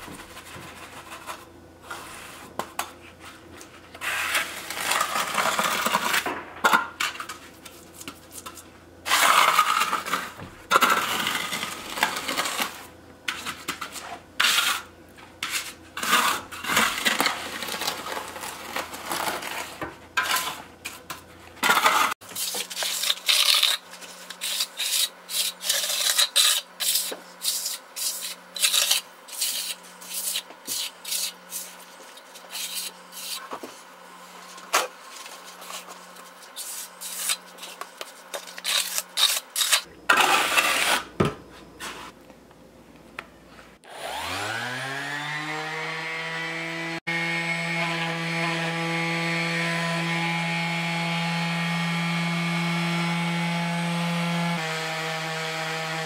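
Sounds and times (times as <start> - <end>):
trowel scraping wet concrete: 4.0 - 6.2, 7.0 - 41.1.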